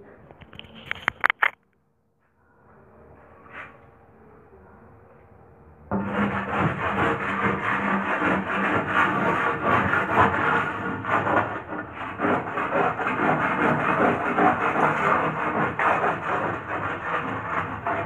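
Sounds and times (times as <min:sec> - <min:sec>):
bar scraping paint off wall: 0:05.9 - 0:18.0.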